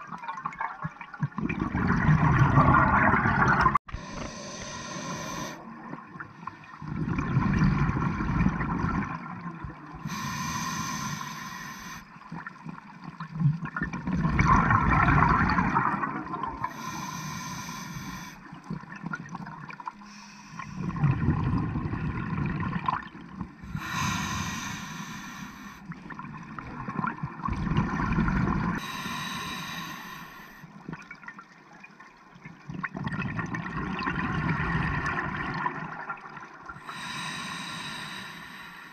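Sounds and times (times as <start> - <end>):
exhaled air bubbling: 0.0 - 31.5, 32.5 - 38.9
regulator hiss on inhale: 4.0 - 5.6, 10.0 - 12.1, 16.7 - 18.5, 20.0 - 20.9, 23.7 - 25.9, 28.8 - 30.7, 36.8 - 38.9.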